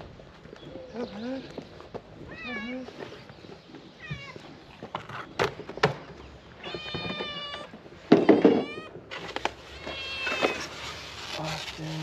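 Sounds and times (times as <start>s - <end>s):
cats meowing: 2.2s - 3.0s, 4.0s - 4.6s, 6.5s - 11.0s.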